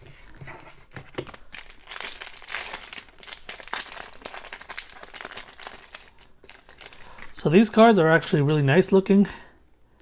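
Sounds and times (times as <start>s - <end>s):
foil wrapper crinkling: 1.2s - 7.4s.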